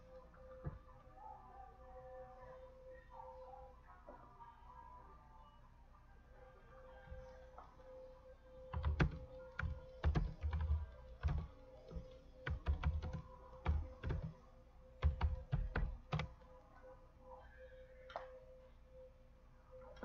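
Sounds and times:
faint steady hum: 0.0s - 20.0s
computer keyboard typing: 8.7s - 14.4s, 15.0s - 16.4s.

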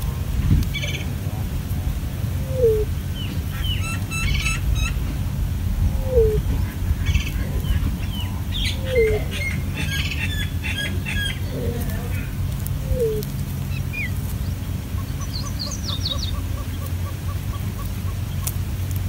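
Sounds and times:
low falling coo: 0.0s - 3.5s, 5.8s - 13.5s
steady low hum: 0.0s - 19.0s
high bird chirps: 6.1s - 11.6s, 12.8s - 18.5s.

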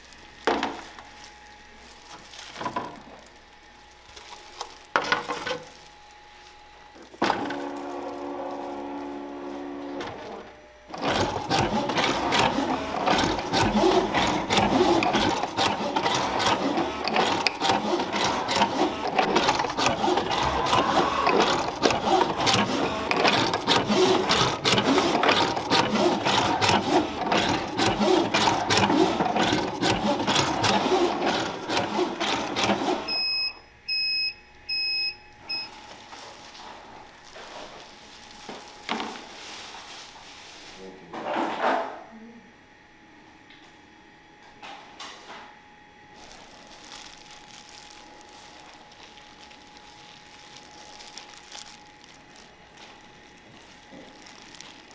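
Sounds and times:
rapid mechanical clicks: 10.9s - 32.8s.

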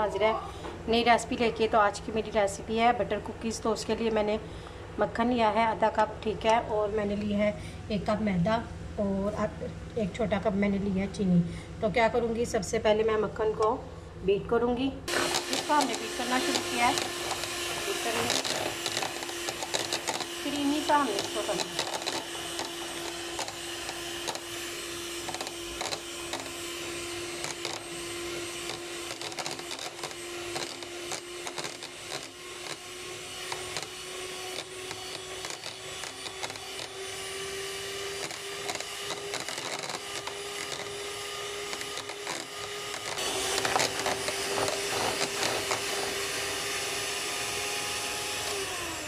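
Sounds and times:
electric hand mixer running: 15.1s - 49.0s.

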